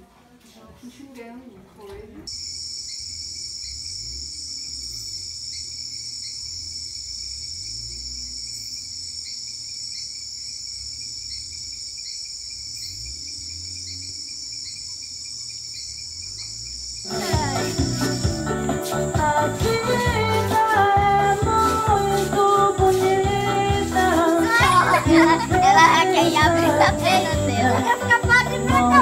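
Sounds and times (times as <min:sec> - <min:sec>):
crickets trilling: 0:02.3 - 0:29.0.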